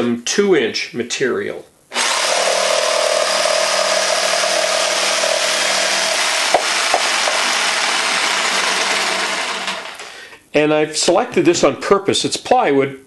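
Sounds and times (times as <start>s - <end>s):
jigsaw cutting wood: 1.9s - 10.0s
sharp knocks: 6.5s - 7.5s.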